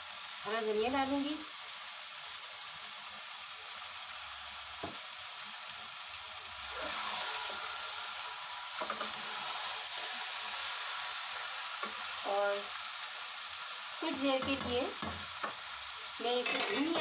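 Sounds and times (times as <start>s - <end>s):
meat sizzling in a pot: 0.0s - 17.0s
metal spatula scraping pot: 16.2s - 17.0s.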